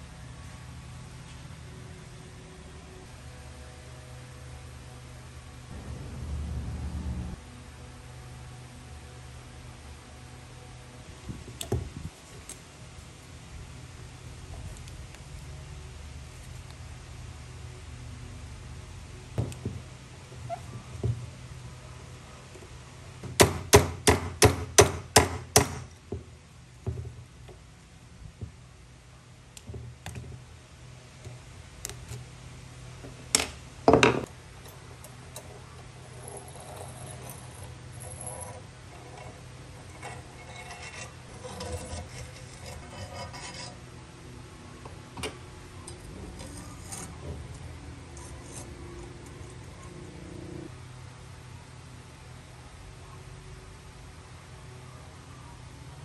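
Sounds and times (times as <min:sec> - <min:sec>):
soft scraping: 0:36.1 - 0:43.8.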